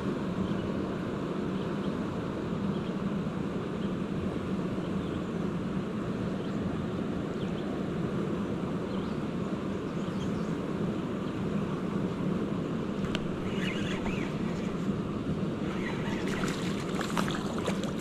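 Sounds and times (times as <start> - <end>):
low hum: 12.1 - 18.0.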